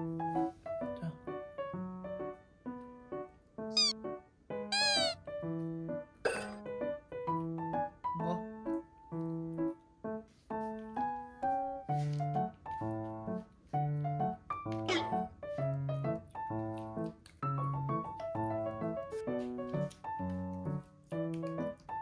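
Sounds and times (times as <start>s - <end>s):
light bouncy background music: 0.0s - 22.0s.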